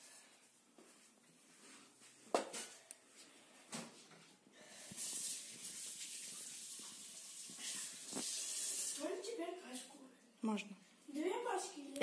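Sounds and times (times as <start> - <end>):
steady hiss: 4.6 - 9.4.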